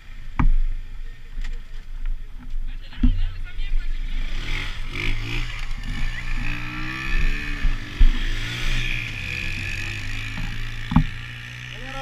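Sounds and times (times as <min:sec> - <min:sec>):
atv revving past: 0:03.9 - 0:12.0
short thump: 0:10.2 - 0:11.2.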